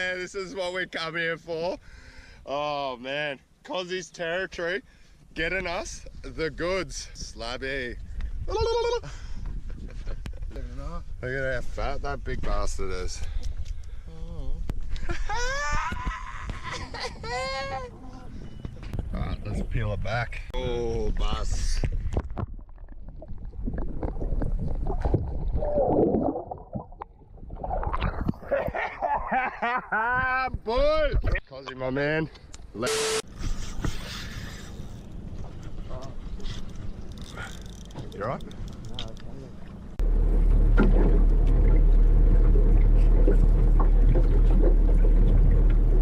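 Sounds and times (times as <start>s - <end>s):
loud low rumble: 40.0s - 46.0s.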